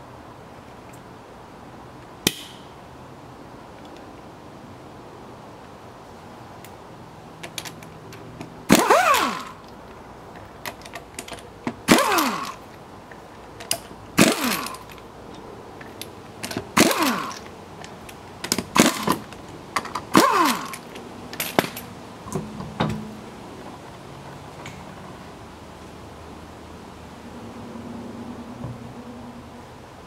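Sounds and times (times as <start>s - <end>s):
pneumatic impact wrench bursts: 8.7s - 9.6s, 11.8s - 12.6s, 13.7s - 15.0s, 16.4s - 17.5s, 18.5s - 19.3s, 20.0s - 21.8s.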